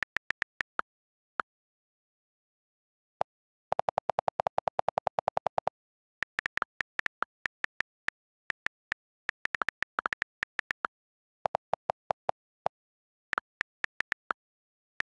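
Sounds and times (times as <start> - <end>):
keyboard typing clicks: 3.7 - 10.9, 11.5 - 14.4.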